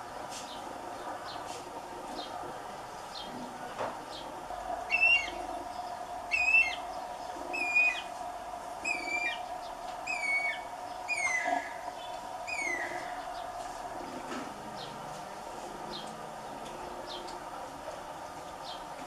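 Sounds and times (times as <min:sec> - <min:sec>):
steady background hum: 0:00.0 - 0:19.0
cuckoo shrill cries: 0:04.9 - 0:05.4, 0:06.3 - 0:06.9, 0:07.5 - 0:08.1, 0:08.8 - 0:11.8, 0:12.4 - 0:13.2.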